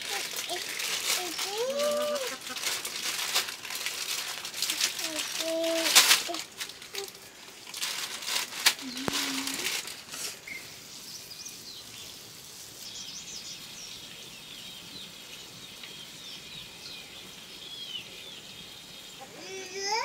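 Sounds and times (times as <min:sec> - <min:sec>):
faint background hiss: 0:00.0 - 0:20.0
birds chirping: 0:08.8 - 0:20.0.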